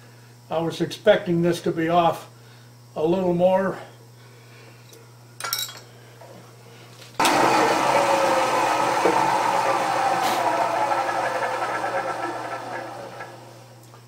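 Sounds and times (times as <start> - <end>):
milling machine cutting: 7.2 - 13.7.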